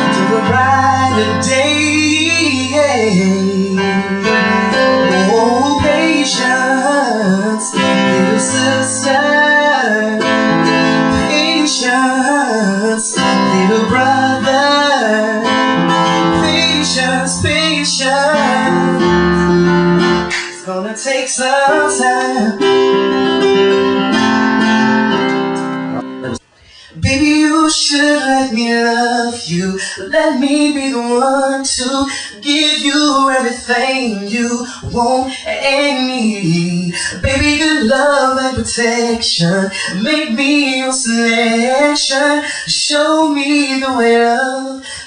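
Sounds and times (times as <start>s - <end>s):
guitar accompaniment: 0.0s - 26.4s.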